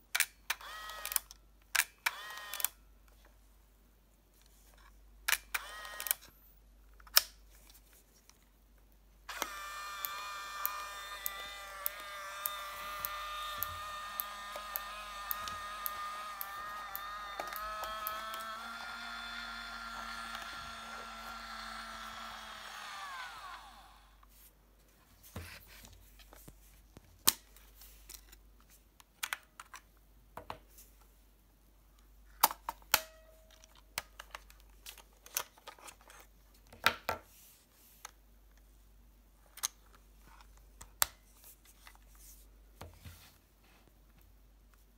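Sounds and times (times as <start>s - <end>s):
camera motor whirring: 0.6s - 1.2s, 2.0s - 2.8s, 5.5s - 6.2s, 9.3s - 24.2s.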